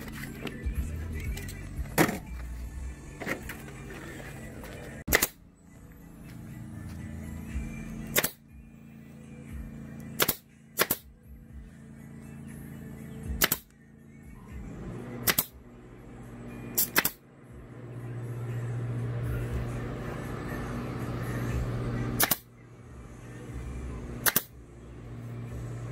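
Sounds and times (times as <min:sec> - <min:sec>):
staple gun snapping: 0:05.1 - 0:05.4, 0:10.2 - 0:11.0, 0:13.4 - 0:13.7, 0:15.3 - 0:15.5, 0:16.8 - 0:17.2, 0:22.2 - 0:22.5, 0:24.2 - 0:24.5.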